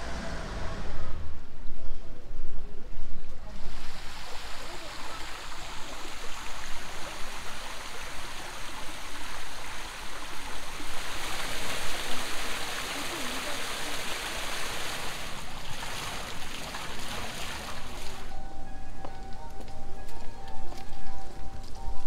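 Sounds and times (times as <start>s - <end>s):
waterfall splashing: 3.6s - 18.4s.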